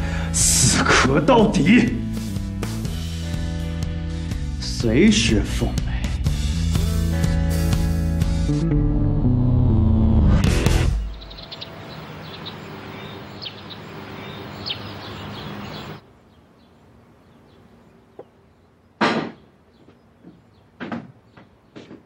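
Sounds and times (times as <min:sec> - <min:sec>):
steady outdoor hiss: 0:00.0 - 0:08.1, 0:10.6 - 0:22.0
bird chirps: 0:10.9 - 0:21.9.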